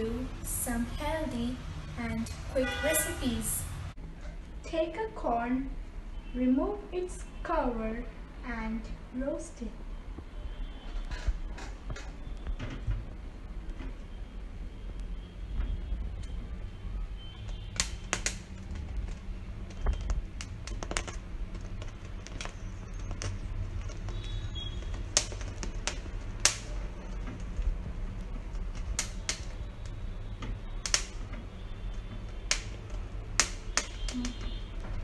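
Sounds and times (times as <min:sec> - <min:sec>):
gas flame rumble: 0:00.0 - 0:04.6, 0:09.7 - 0:35.0
corn kernels crackling and popping: 0:10.8 - 0:14.2, 0:14.9 - 0:35.0.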